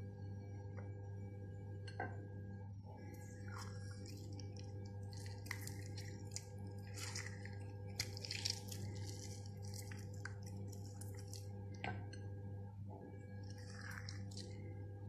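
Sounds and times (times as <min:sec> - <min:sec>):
steady low hum: 0:00.0 - 0:15.0
wet squishing and dripping: 0:03.0 - 0:12.0, 0:13.3 - 0:14.8.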